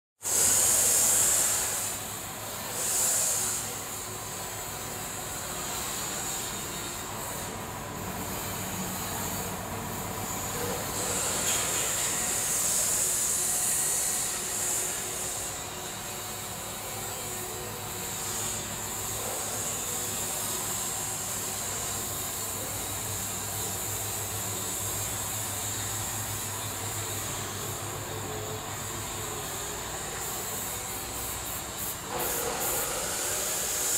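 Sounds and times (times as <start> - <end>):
paint spray gun hissing: 0.3 - 1.7, 30.1 - 33.9.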